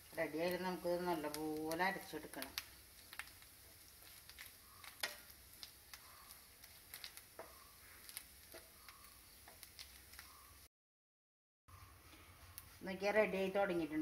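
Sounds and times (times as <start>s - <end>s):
wooden spatula scraping a pan: 6.6s - 8.8s.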